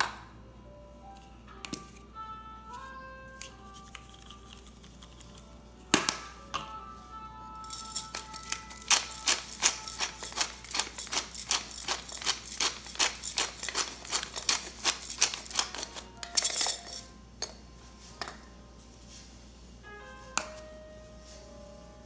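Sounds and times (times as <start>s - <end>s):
pepper grinder crunching clicks: 8.0s - 16.7s.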